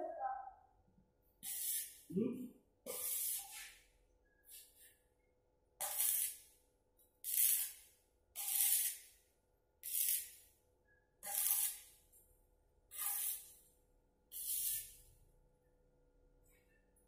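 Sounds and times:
arc welder crackling hiss: 1.4 - 2.1, 2.9 - 3.8, 5.8 - 6.6, 7.3 - 9.2, 9.8 - 10.5, 11.2 - 12.0, 13.0 - 13.7, 14.3 - 15.1.

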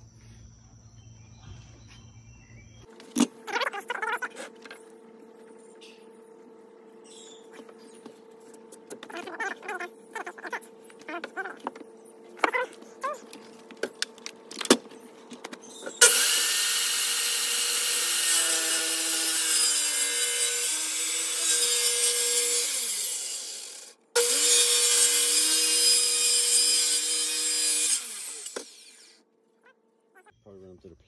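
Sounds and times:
circular saw cutting wood: 15.9 - 29.2.

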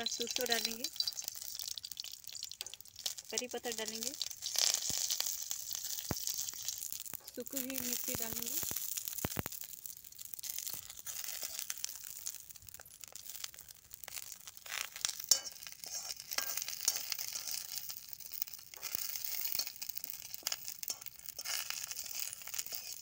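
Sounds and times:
seeds sizzling in hot oil: 0.0 - 23.0
spoon scraping pan: 14.8 - 23.0.

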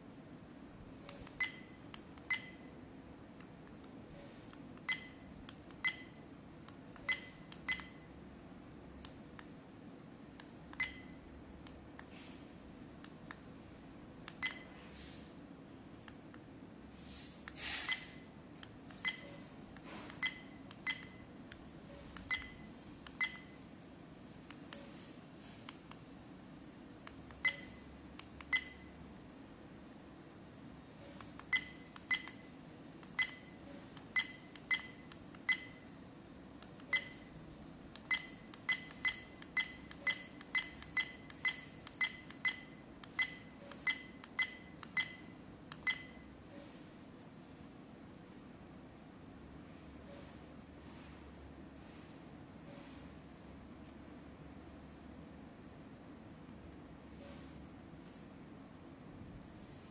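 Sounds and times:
high button beeps with clicks: 1.4 - 2.7, 4.9 - 6.2, 7.0 - 8.1, 10.8 - 11.2, 14.4 - 14.8, 17.8 - 18.2, 19.0 - 19.4, 20.2 - 21.3, 21.9 - 23.6, 27.4 - 27.8, 28.5 - 29.0, 31.4 - 32.5, 33.2 - 33.6, 34.2 - 35.8, 36.8 - 37.3, 38.1 - 46.3.

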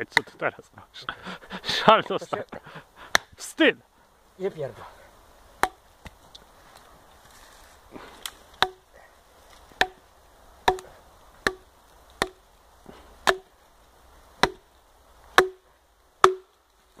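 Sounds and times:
hatchet chopping branch: 3.1 - 3.4, 5.6 - 6.2, 8.0 - 8.9, 9.5 - 12.5, 13.2 - 13.5, 14.4 - 14.7, 15.3 - 16.6.

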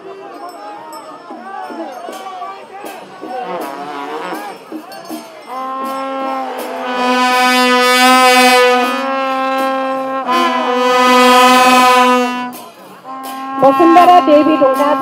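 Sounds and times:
crowd voices: 0.0 - 15.0
brass trumpets sustained drone: 3.4 - 4.4, 5.6 - 15.0.

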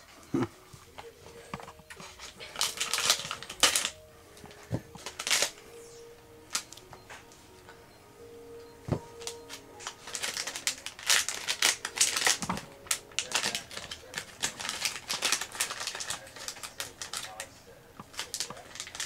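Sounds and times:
crinkly packaging being opened: 1.6 - 5.7, 6.5 - 6.8, 9.0 - 19.0.

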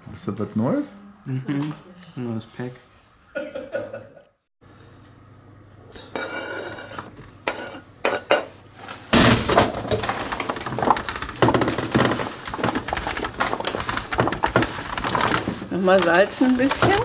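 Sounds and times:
vegetable chunks clattering on metal tray: 9.1 - 17.0.

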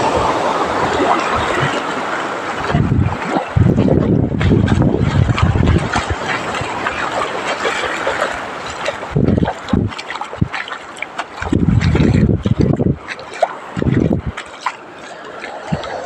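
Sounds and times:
wind buffeting microphone: 0.0 - 14.7, 15.4 - 16.0
small waves washing on beach: 0.0 - 16.0.

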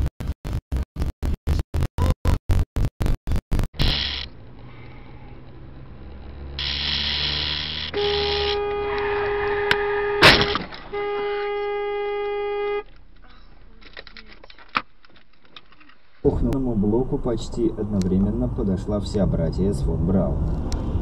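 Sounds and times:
car horn honking: 7.8 - 12.9.

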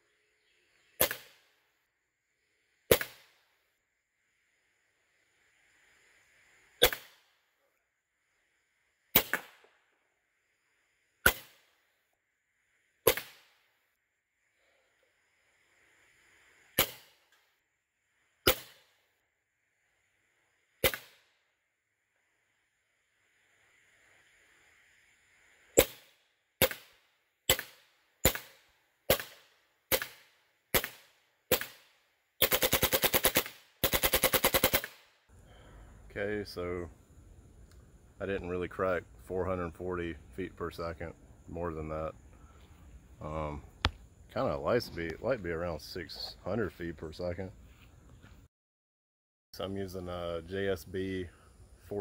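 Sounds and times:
air rifle shots: 1.0 - 1.4, 2.9 - 3.4, 6.8 - 7.2, 9.1 - 9.6, 11.2 - 11.7, 13.0 - 13.5, 16.8 - 17.2, 18.4 - 18.9, 20.8 - 21.2, 25.8 - 35.0.

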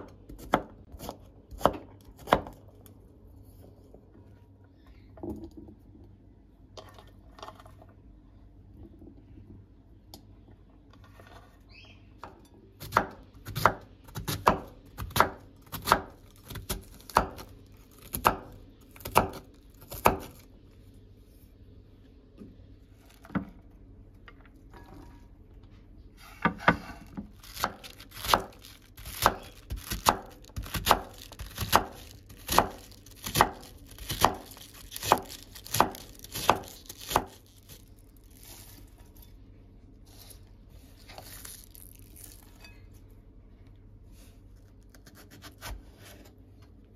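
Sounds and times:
knife chopping on wooden board: 27.6 - 37.4.

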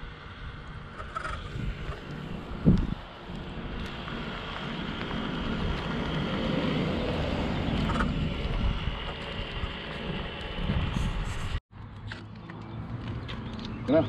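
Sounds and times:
wind on microphone: 0.9 - 11.6
bicycle tyres rolling over gravel: 1.8 - 11.6.

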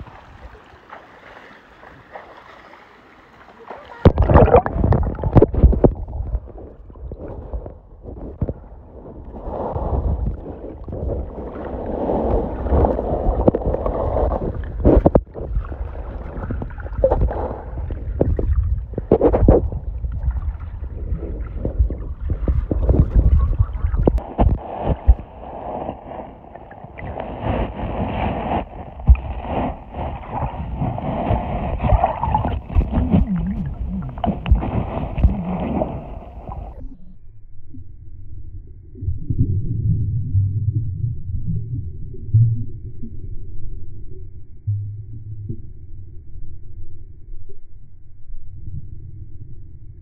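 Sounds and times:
underwater low rumble: 0.0 - 2.2, 3.5 - 50.0
gurgle of moving water: 0.0 - 37.2
knocks and clicks underwater: 3.7 - 8.7, 12.1 - 25.2, 27.0 - 37.0.

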